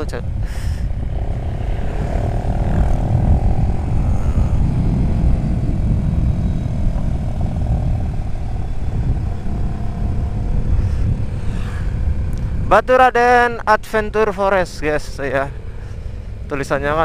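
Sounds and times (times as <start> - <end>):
motorcycle engine cruising: 0.0 - 12.8
wind buffeting microphone: 0.0 - 17.0.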